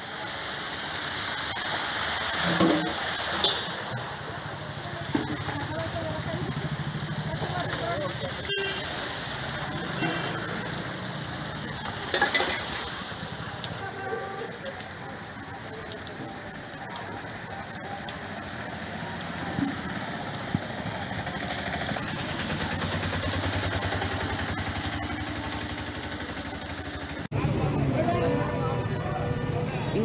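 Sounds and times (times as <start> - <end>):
steady rain on street: 0.0 - 30.0
auto-rickshaw engine running: 15.0 - 30.0.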